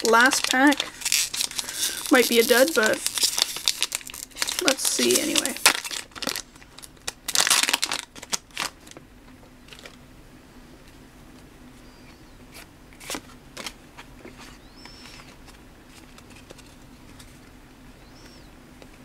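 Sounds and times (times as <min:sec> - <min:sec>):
trading cards rustling and clicking: 0:00.0 - 0:06.4, 0:12.5 - 0:17.4
low steady hum: 0:00.0 - 0:19.0
faint high chirps: 0:14.6 - 0:15.3, 0:18.0 - 0:18.6.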